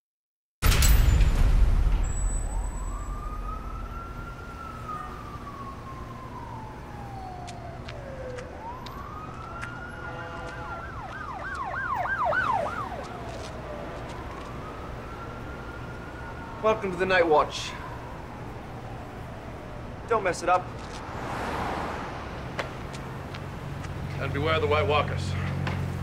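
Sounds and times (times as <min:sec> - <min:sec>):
low rumble: 0:00.7 - 0:05.0
emergency vehicle siren wailing: 0:02.1 - 0:26.0.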